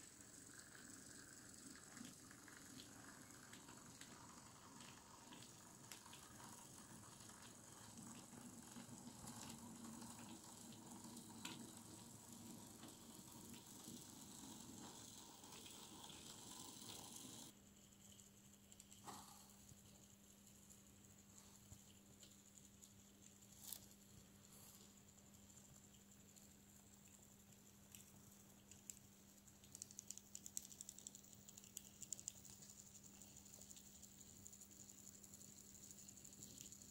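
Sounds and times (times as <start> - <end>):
model train motor humming: 10.4 - 17.5.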